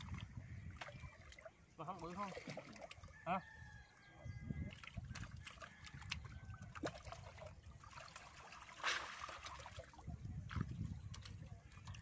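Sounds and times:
hands splashing in muddy water: 0.0 - 3.1, 4.6 - 12.0
loud splash: 6.8 - 9.9.

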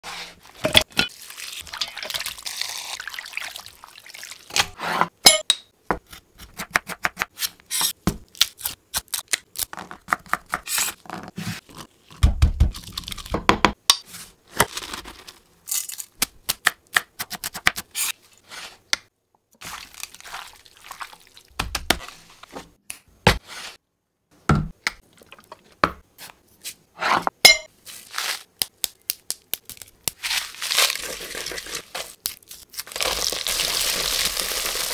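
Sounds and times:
water pouring onto chicken: 1.2 - 4.5, 33.1 - 34.9.

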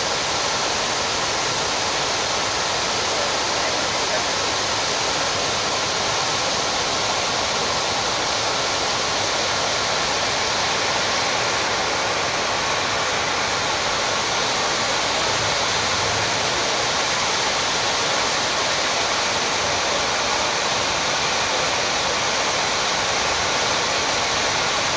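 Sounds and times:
water rushing down stone walls: 0.0 - 24.9.

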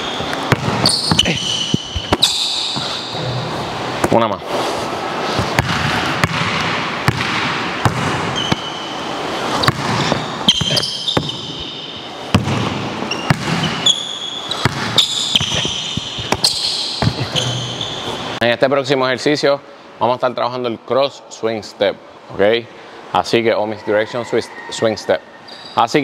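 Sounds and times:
sneakers squeaking on court: 0.0 - 3.5, 5.4 - 18.4
basketball bouncing on wooden floor: 0.5 - 2.9, 5.4 - 8.7, 9.6 - 11.7, 12.3 - 13.9, 14.6 - 18.0.

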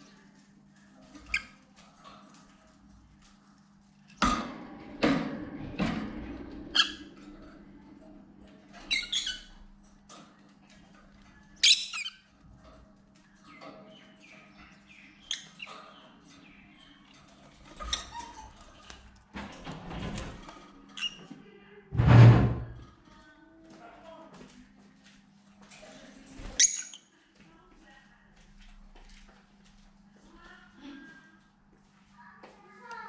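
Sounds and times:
knocks and rustles in wire cage: 1.0 - 11.5, 17.1 - 20.9, 22.0 - 22.9.

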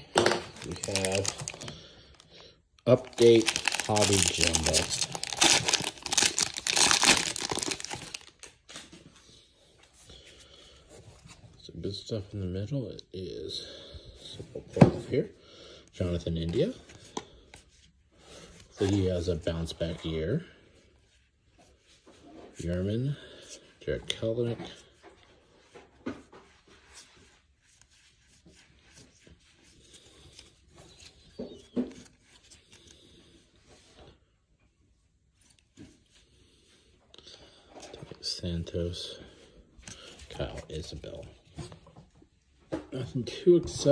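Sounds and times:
faint handling noise: 0.1 - 9.2
foil wrapper crinkling: 0.5 - 8.8.

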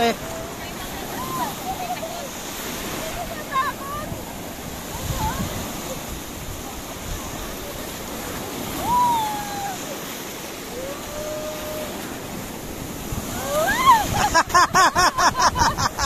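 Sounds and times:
waves breaking: 0.0 - 16.0
high-pitched laughter: 13.5 - 16.0.

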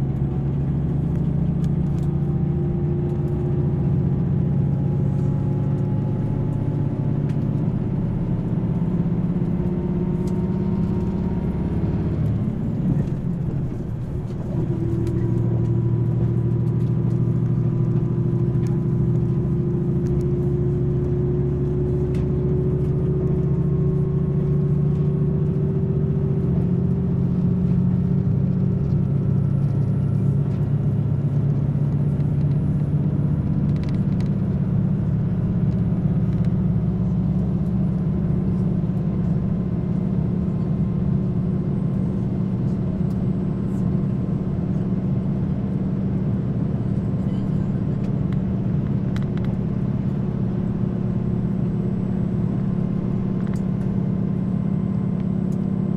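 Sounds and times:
diesel engine drone: 0.0 - 55.9
rail running noise: 0.0 - 55.9.

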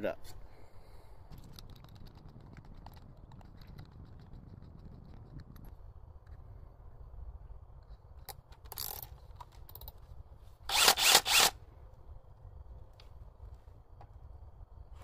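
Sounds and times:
cordless drill burst: 10.7 - 11.6
drill rasping: 10.7 - 11.6.

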